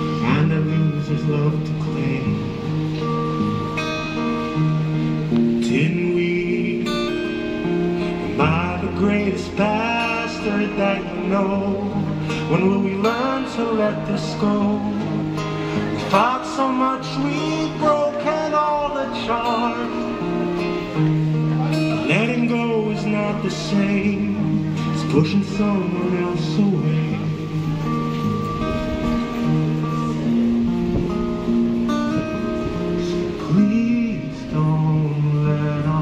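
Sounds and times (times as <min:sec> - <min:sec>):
strummed guitar chords: 0:00.0 - 0:36.0
person singing: 0:05.4 - 0:28.5, 0:32.8 - 0:36.0.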